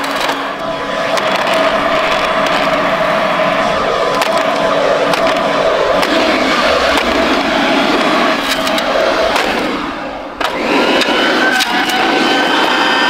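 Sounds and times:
vacuum motor whine: 0.0 - 13.0
plastic knocking and cracking: 1.1 - 2.8, 4.1 - 7.6.

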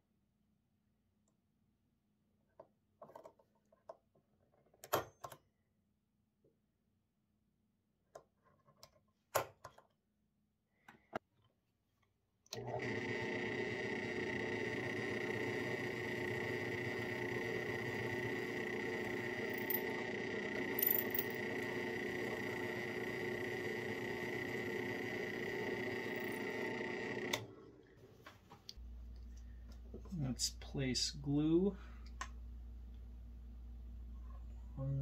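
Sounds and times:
drill press motor running: 12.6 - 28.0.

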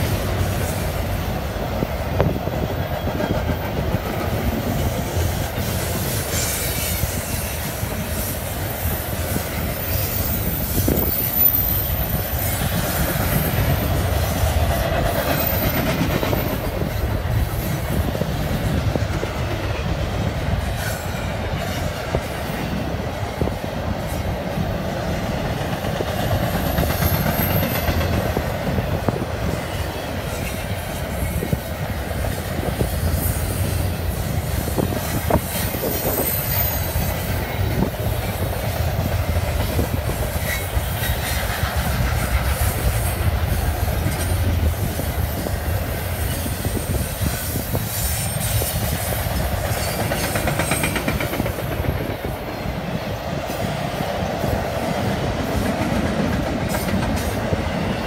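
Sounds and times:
wheels clacking over rail joints: 0.0 - 52.8, 53.4 - 58.0
train wheels rumbling on rail: 0.0 - 58.0.

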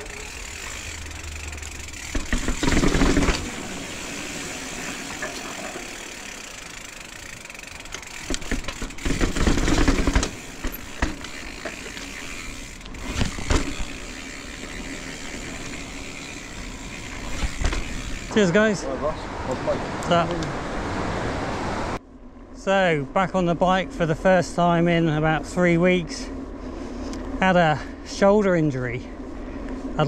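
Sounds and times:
bike chain and frame clattering: 0.0 - 18.6
bike tyre noise: 0.0 - 21.9.

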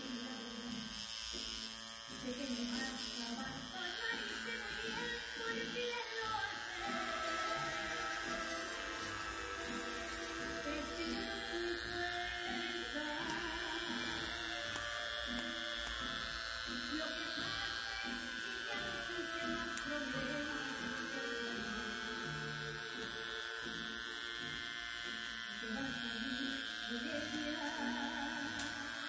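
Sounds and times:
small electric motor buzzing: 0.0 - 29.0
music playing: 3.5 - 23.9.

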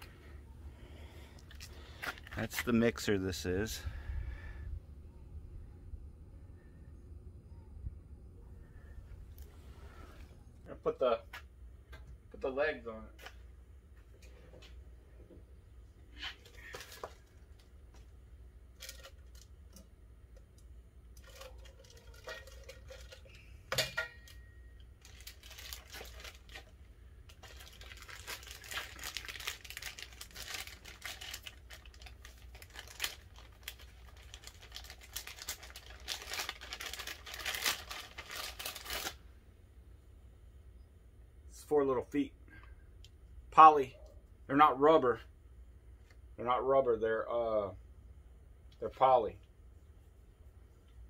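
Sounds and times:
plastic bag crinkling: 25.0 - 39.2.

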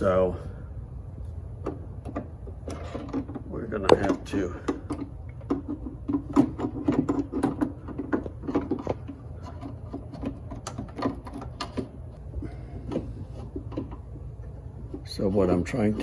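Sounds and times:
metal parts clicking and rattling: 1.6 - 12.1.

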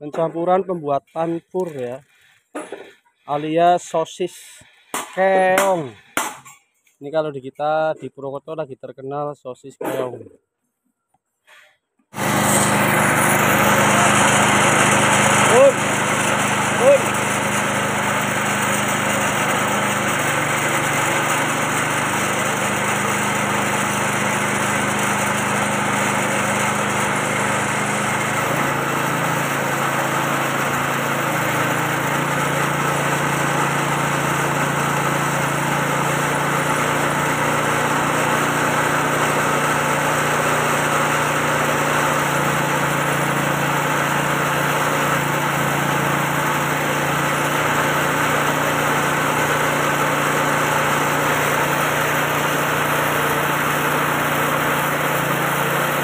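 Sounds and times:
machine engine running under load: 12.2 - 56.0.

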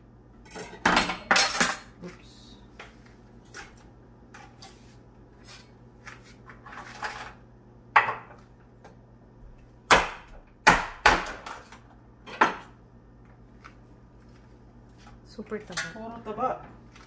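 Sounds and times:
knife chopping crab shells: 9.9 - 11.7.

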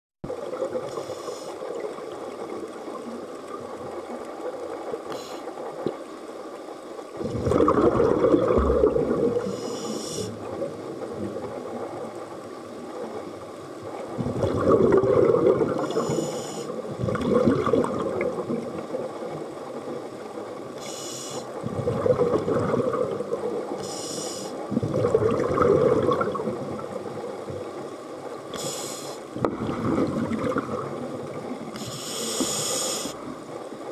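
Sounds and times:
regulator hiss on inhale: 0.8 - 1.7, 5.1 - 5.6, 9.4 - 10.5, 15.8 - 16.8, 20.8 - 21.6, 23.8 - 24.7, 28.5 - 29.3, 31.7 - 33.2
bubbling rush on exhale: 7.2 - 11.5, 14.1 - 18.8, 20.8 - 27.1, 28.5 - 33.3.

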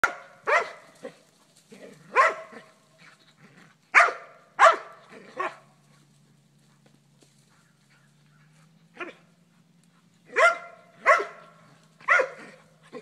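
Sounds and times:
dog barking: 0.0 - 1.2, 2.1 - 2.7, 3.9 - 5.7, 10.3 - 13.0.

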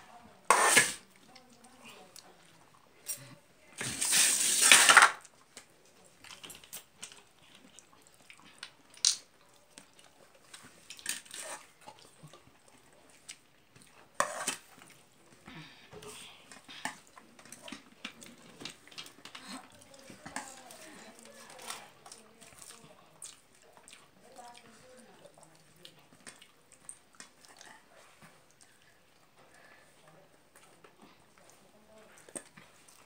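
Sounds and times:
fingers mixing rice on metal plate: 0.5 - 1.5.

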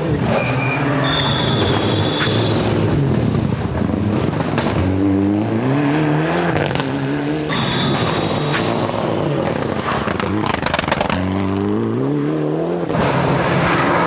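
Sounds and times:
rally car engine revving: 0.0 - 14.0
high steady whistle: 0.6 - 2.5, 7.5 - 8.8
exhaust pops: 7.8 - 11.2.

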